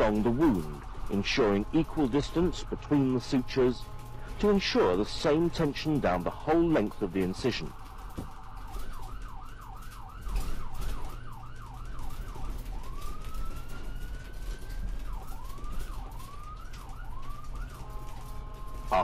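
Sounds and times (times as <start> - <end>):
electronic siren yelp and wail: 0.0 - 19.0.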